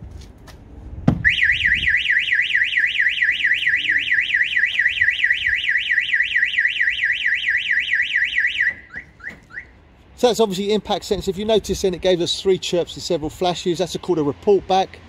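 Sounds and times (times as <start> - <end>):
thump on van window: 1.0 - 1.3
car alarm siren warbling: 1.2 - 9.8.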